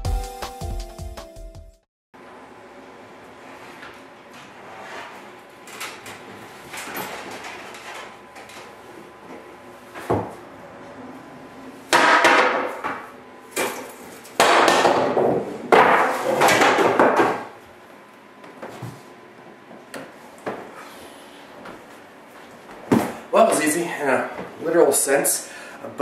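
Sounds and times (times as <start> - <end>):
brooms clattering onto wooden floor: 12.0 - 17.5.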